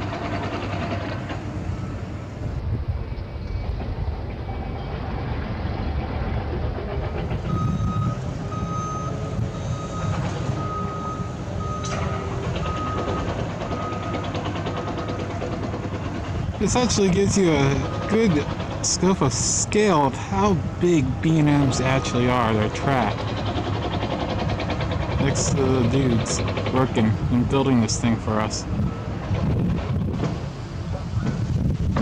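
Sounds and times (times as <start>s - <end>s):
low rumble of machinery: 0.0s - 32.0s
backup alarm beeping: 7.5s - 15.3s, 17.6s - 18.4s, 21.4s - 22.9s.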